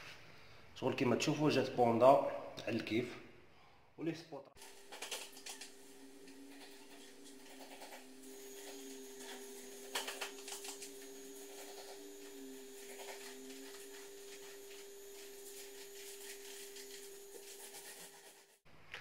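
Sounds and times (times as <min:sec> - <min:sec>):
electrical hum: 0:04.6 - 0:18.6
paint roller rolling: 0:04.6 - 0:18.6.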